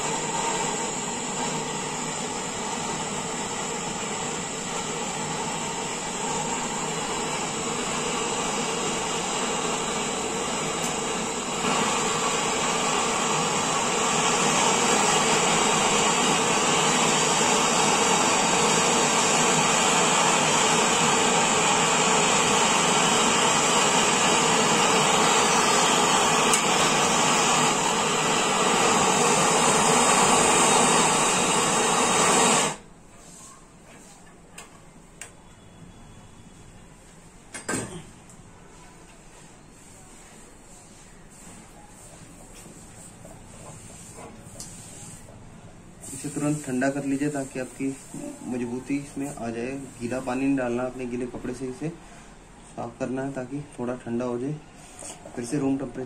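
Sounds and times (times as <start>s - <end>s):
gas torch flame hissing: 0.0s - 32.9s, 42.3s - 45.3s, 46.0s - 52.0s.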